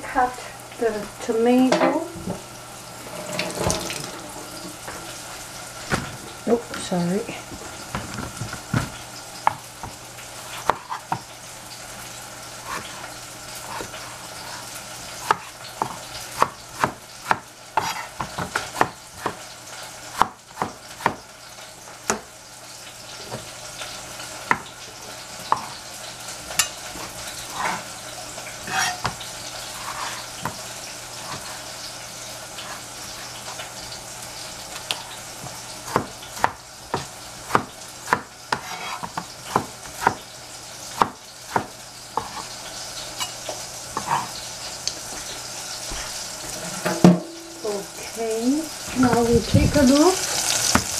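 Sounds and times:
mushrooms sizzling in pan: 0.0 - 50.9
knife cutting on cutting board: 15.2 - 19.4, 28.6 - 29.2, 29.8 - 30.6, 37.5 - 40.2, 41.5 - 42.6, 44.0 - 44.4.

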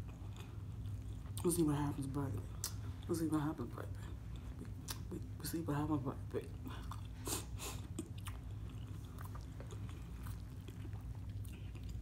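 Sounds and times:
wet chewing clicks: 7.9 - 12.0.

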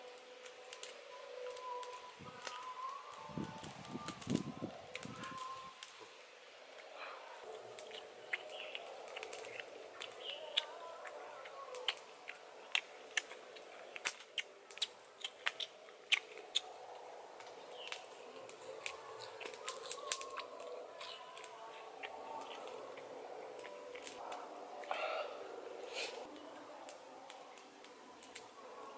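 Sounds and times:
lips smacking and chewing: 7.5 - 25.0.

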